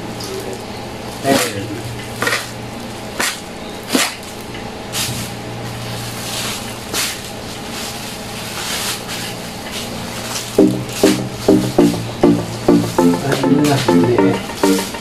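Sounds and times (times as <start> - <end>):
plastic bags rustling: 5.0 - 10.6
steady low hum: 10.6 - 15.0.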